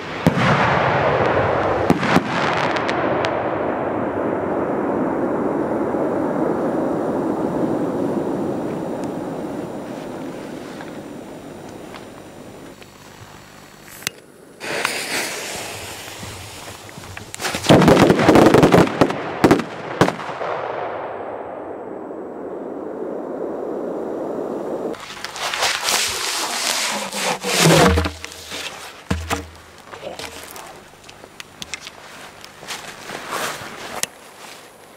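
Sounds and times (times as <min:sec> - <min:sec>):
firework crackling and cracks: 0:00.0 - 0:04.7, 0:07.6 - 0:20.6, 0:24.8 - 0:34.9.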